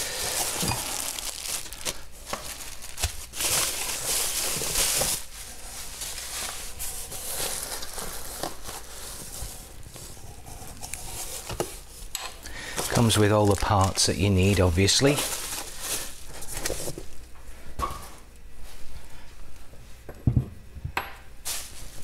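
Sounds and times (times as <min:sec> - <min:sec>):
plastic wrapping crinkling: 0:00.0 - 0:17.2.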